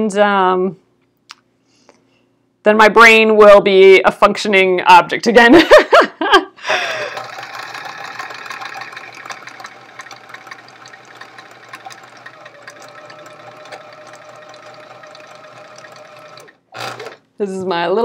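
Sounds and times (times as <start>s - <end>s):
electric sewing machine stitching: 6.7s - 17.2s.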